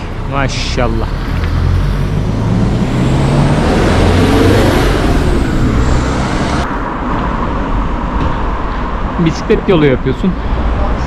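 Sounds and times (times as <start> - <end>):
vehicle passing: 0.0 - 9.2
road noise rush: 0.0 - 11.0.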